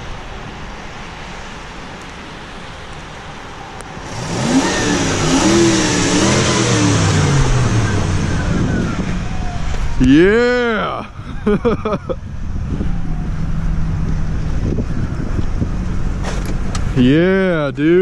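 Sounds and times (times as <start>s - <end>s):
truck engine accelerating past: 4.0s - 10.3s.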